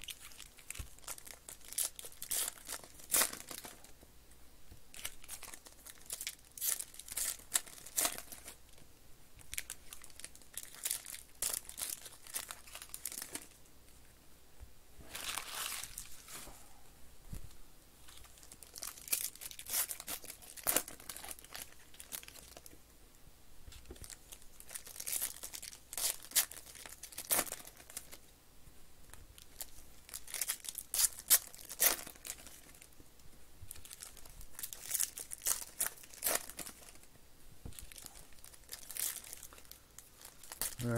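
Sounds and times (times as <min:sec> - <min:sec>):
foil wrappers tearing and crinkling: 0:00.0 - 0:03.9, 0:04.9 - 0:08.6, 0:09.4 - 0:13.6, 0:15.1 - 0:16.4, 0:18.1 - 0:22.7, 0:24.0 - 0:28.2, 0:29.4 - 0:32.9, 0:33.7 - 0:37.1, 0:37.8 - 0:40.9.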